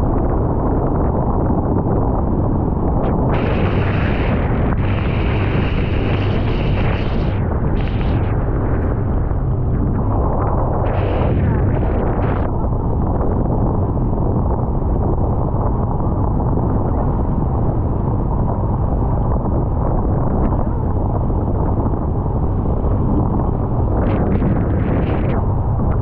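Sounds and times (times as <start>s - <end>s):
wind buffeting microphone: 0.0s - 26.0s
boat engine rumbling: 2.1s - 18.0s.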